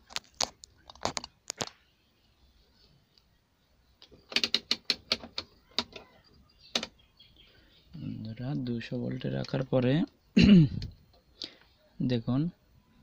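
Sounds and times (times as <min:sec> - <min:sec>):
rotary selector clicking: 0:04.0 - 0:06.1.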